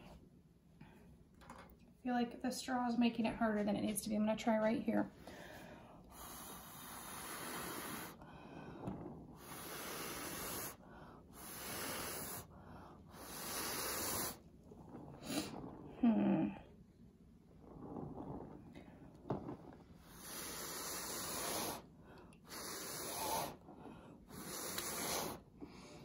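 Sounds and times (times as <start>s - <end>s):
person blowing hard: 6.1s - 8.2s, 9.4s - 12.5s, 13.1s - 14.4s, 20.0s - 23.6s, 24.3s - 25.5s.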